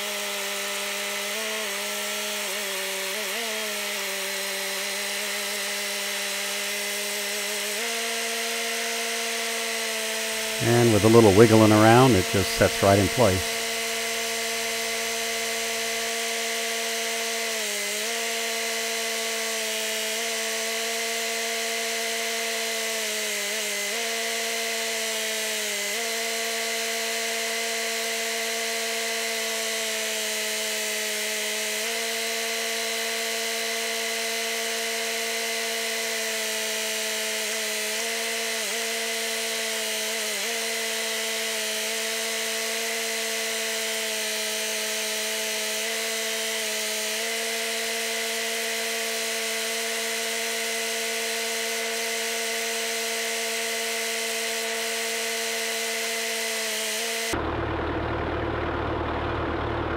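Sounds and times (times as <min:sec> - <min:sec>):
mini excavator engine and hydraulics: 0:10.1 - 0:16.4, 0:57.3 - 0:59.9.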